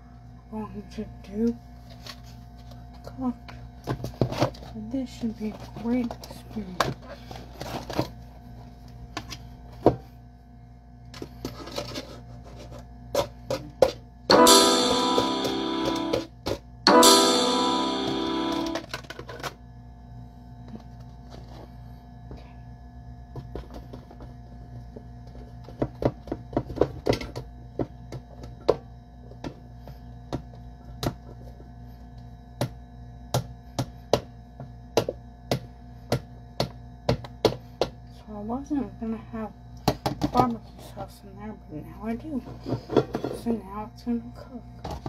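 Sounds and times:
loud musical bursts: 0:14.3 - 0:16.3, 0:16.9 - 0:18.8.

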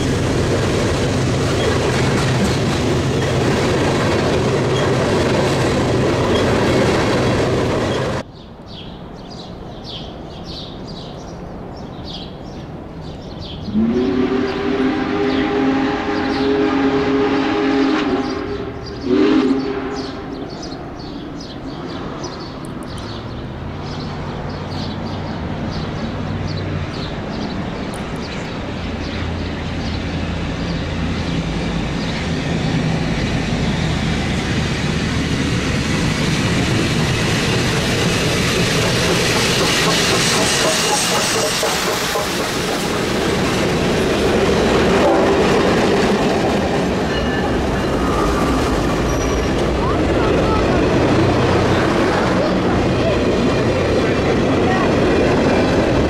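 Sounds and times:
rail clatter: 0:00.0 - 0:08.3, 0:22.0 - 0:56.0
locomotive and train rumble: 0:00.0 - 0:56.0
steam locomotive whistle: 0:13.7 - 0:20.4, 0:44.9 - 0:45.6
steam hiss: 0:34.3 - 0:43.9.

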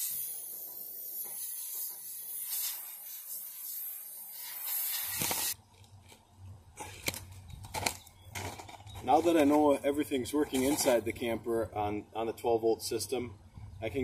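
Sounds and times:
compressed air hissing: 0:00.0 - 0:05.6.

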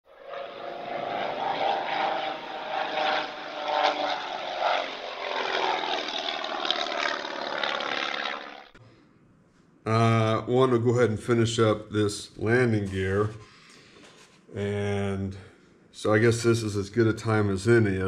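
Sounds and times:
propeller aircraft engine droning: 0:00.1 - 0:08.8.

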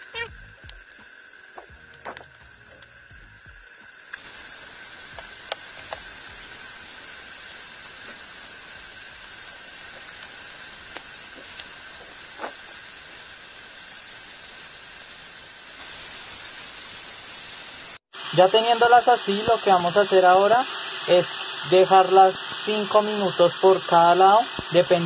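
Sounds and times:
patties sizzling in oil: 0:00.0 - 0:25.0
oil pops and crackles: 0:00.6 - 0:03.0, 0:04.0 - 0:07.1, 0:07.7 - 0:13.2, 0:24.5 - 0:24.8.

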